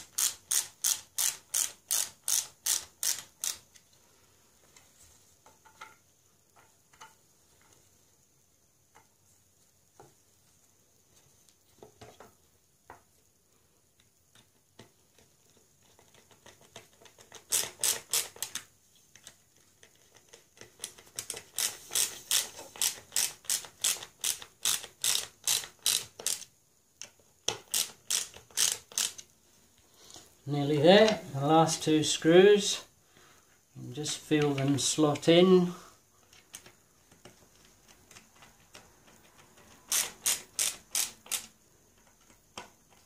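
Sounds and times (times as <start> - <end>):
hand screwdriver clicking: 0.0 - 3.8, 19.2 - 29.3, 36.3 - 43.0.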